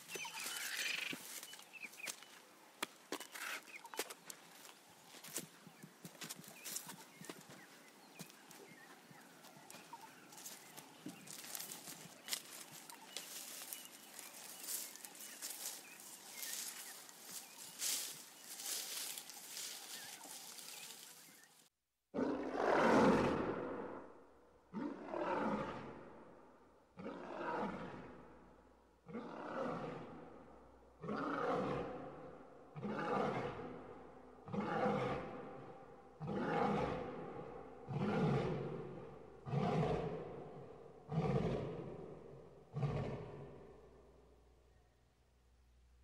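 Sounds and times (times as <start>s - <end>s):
lion roaring: 22.2s - 24.0s, 24.7s - 26.1s, 27.0s - 28.2s, 29.0s - 30.3s, 31.0s - 43.8s.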